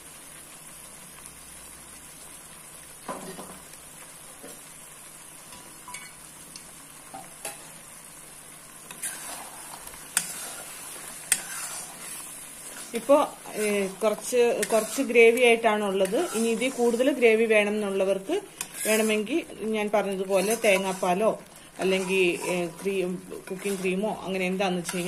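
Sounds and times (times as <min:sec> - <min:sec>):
curry sizzling in a pan: 0:00.0 - 0:25.0
spatula stirring and tapping pan: 0:05.5 - 0:07.7, 0:08.8 - 0:17.2, 0:18.1 - 0:19.4, 0:20.1 - 0:25.0.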